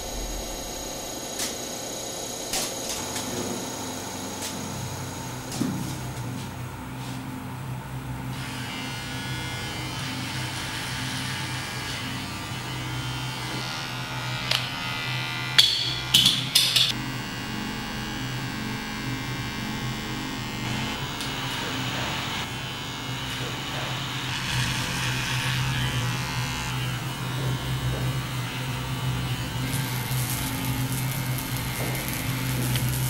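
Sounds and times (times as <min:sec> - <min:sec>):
hair clippers buzzing: 0:08.4 - 0:33.0.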